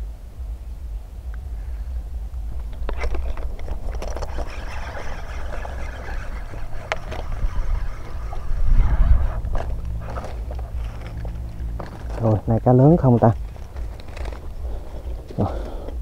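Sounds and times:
steady low rumble: 0.0s - 16.0s
fishing reel clicks: 2.9s - 11.2s.

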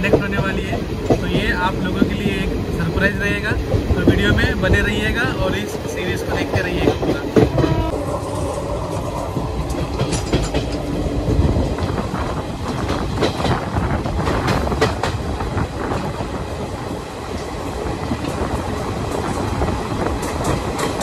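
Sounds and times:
train rumble: 0.0s - 21.0s
train wheels clattering: 3.3s - 16.4s, 17.3s - 21.0s.

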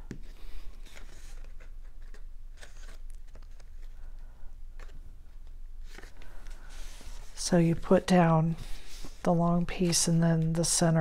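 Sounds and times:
paper rustling: 0.2s - 4.1s, 5.8s - 7.9s.

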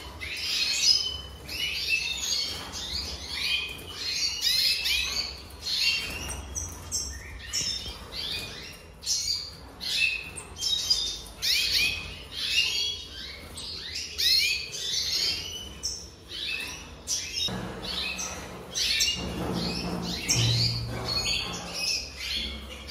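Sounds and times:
bird singing twittering: 0.0s - 22.9s.

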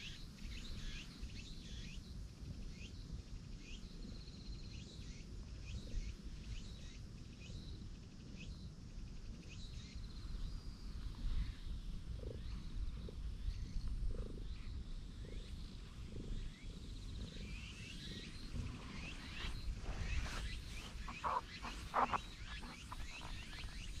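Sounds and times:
cat purring: 9.1s - 24.0s.

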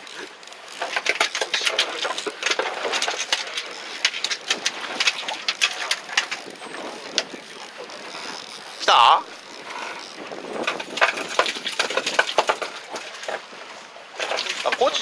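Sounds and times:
fishing reel clicking: 0.0s - 12.0s
wind and sea noise: 0.0s - 15.0s.

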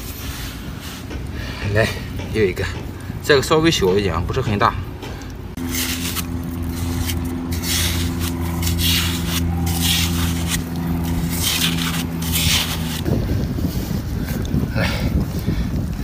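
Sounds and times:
low engine hum: 4.7s - 16.0s
hands digging in wet sand: 5.6s - 14.5s.

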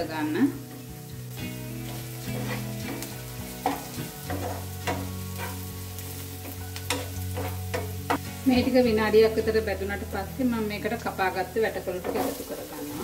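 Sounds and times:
onions sizzling in hot oil: 0.0s - 13.0s
wooden spatula scraping a pan: 1.8s - 8.0s, 11.9s - 13.0s.

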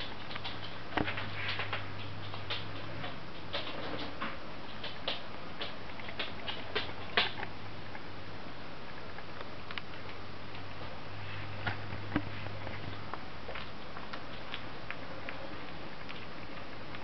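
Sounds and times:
puppy claws clicking on tile: 0.0s - 7.5s, 11.7s - 17.0s.

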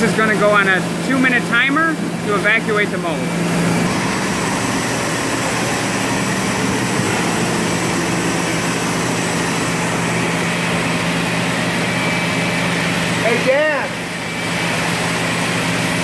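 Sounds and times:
machinery low hum: 0.0s - 16.0s.

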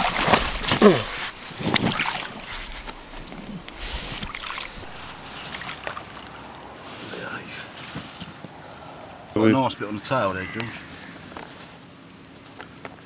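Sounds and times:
water sloshing and splashing: 0.0s - 7.0s
wet sling rustling: 0.0s - 7.0s.

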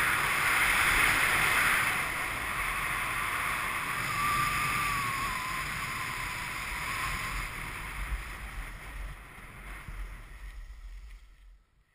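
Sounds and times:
skis scraping on hard snow: 5.6s - 11.6s.

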